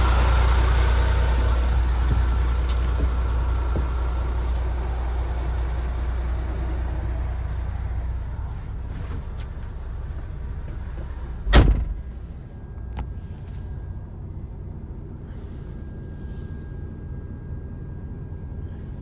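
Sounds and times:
truck diesel engine idling: 0.0 - 19.0
sharp thump: 11.4 - 12.1.

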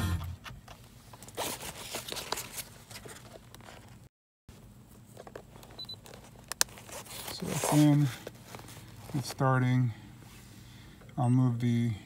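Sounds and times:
cable plug rustling and clicking: 5.2 - 7.4.

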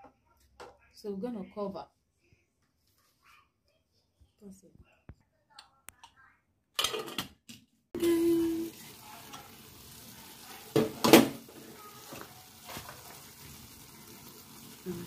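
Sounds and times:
rice sizzling: 8.0 - 15.0.

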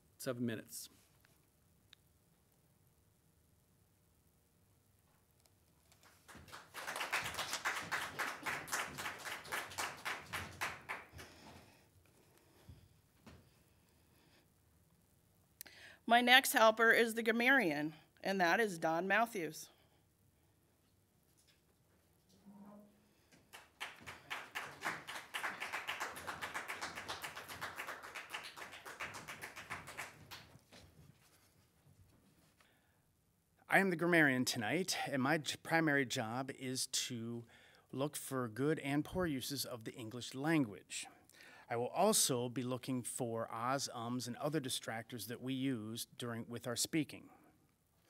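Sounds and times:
audience applauding: 6.0 - 11.6, 23.4 - 30.7.

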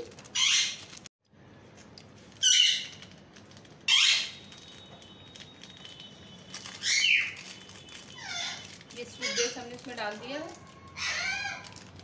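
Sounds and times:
parrot squawking: 0.3 - 0.9, 2.4 - 3.0, 3.9 - 4.4, 6.8 - 7.4, 8.1 - 9.7, 10.6 - 11.8.

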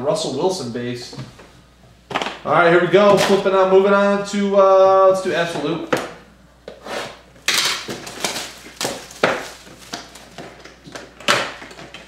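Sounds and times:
plastic shrink wrap tearing: 7.4 - 12.0.

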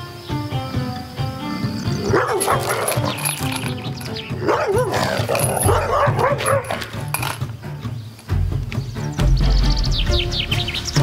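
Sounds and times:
background music: 0.0 - 11.0
dog barking: 2.0 - 3.3, 4.4 - 7.0.

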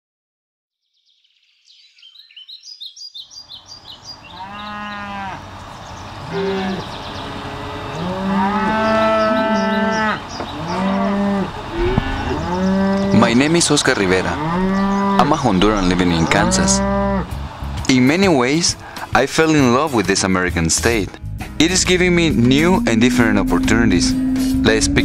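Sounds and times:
cattle mooing: 4.3 - 5.4, 6.2 - 17.4, 22.2 - 25.0.

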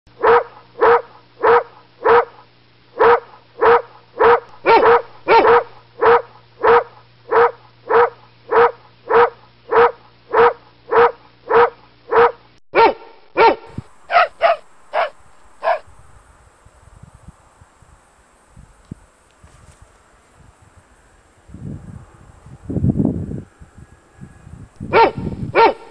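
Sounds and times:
low steady hum: 0.1 - 25.9
dog barking: 0.2 - 2.4, 3.0 - 16.0, 24.9 - 25.9.

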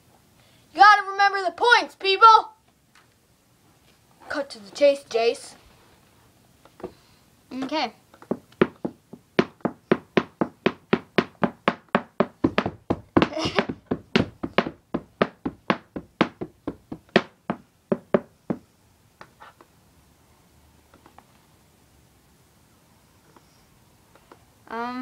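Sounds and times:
fast sharp taps: 8.2 - 18.6.

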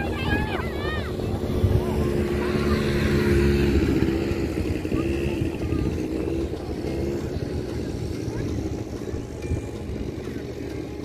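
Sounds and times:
quad bike engine running: 0.0 - 11.0.

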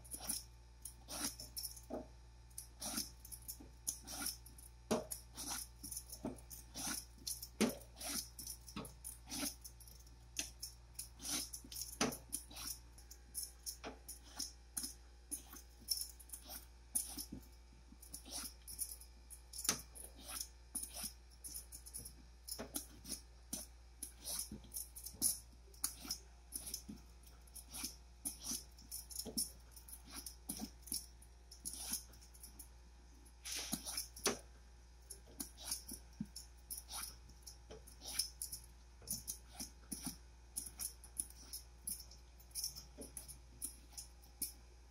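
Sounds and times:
vegetable peeler scraping gourd skin: 2.8 - 3.1, 5.3 - 5.7, 7.8 - 8.4, 9.3 - 9.6, 11.2 - 11.6.

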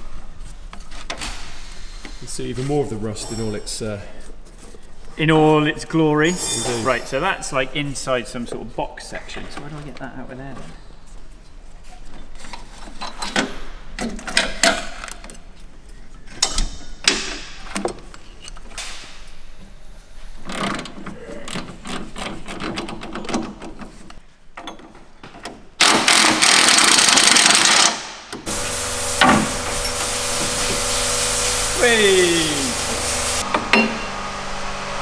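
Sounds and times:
impact wrench running: 25.8 - 34.1.

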